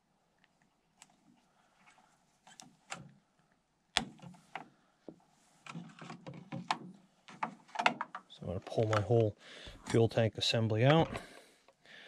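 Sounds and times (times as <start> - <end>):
plastic clicks and knocks: 3.9 - 10.0.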